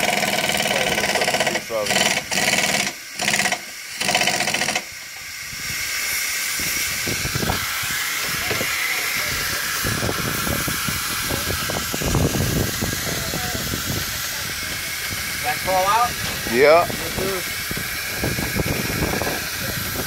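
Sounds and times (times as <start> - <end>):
compressed air hissing: 0.0 - 20.0.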